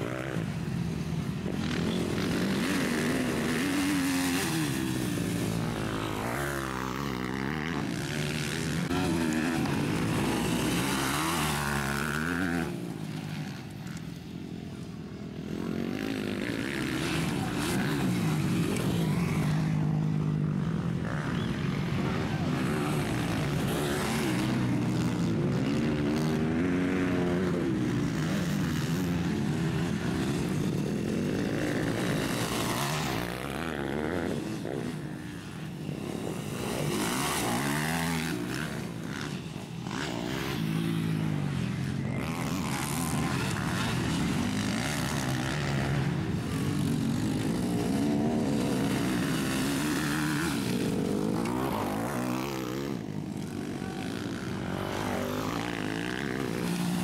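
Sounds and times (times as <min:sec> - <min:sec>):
motorcycle engines revving: 0:00.0 - 0:57.0.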